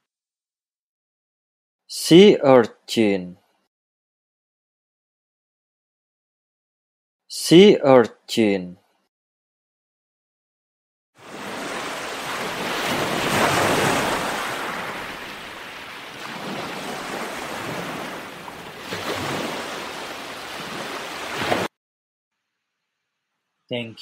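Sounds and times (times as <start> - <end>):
waves washing on shore: 11.2 - 21.7.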